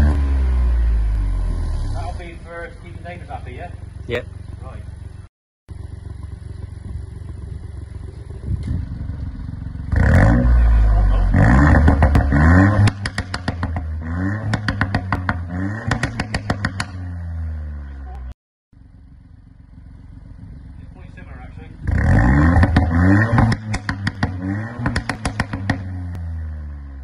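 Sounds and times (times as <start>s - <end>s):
car engine idling and revving: 0.0s - 27.0s
exhaust pops and crackles: 2.2s - 17.1s, 20.3s - 26.3s.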